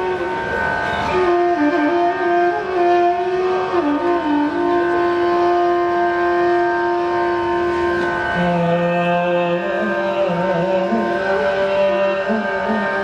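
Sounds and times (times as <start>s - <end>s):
held drone note: 0.0s - 13.0s.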